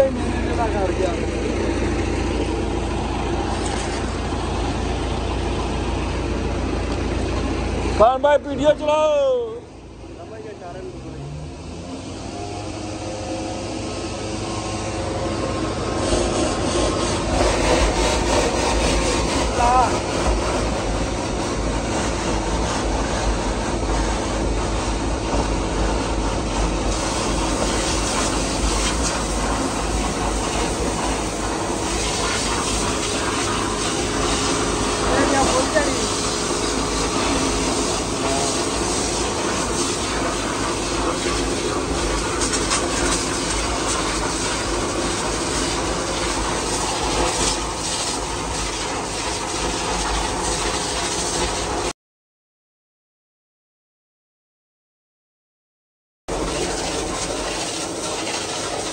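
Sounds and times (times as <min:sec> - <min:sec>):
vacuum truck rumbling: 0:00.0 - 0:51.8
pump running: 0:00.0 - 0:51.9, 0:56.3 - 0:58.9
rushing suction noise: 0:10.9 - 0:51.9
water spraying from nozzle: 0:11.2 - 0:51.9, 0:56.3 - 0:58.9.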